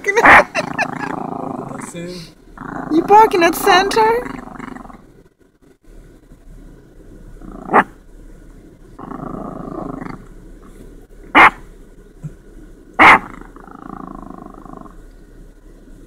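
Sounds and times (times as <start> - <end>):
small dog growling: 0.2 - 5.1, 7.4 - 7.9, 9.0 - 10.3, 13.0 - 15.0
small dog barking sharply: 11.4 - 11.6, 13.0 - 13.3.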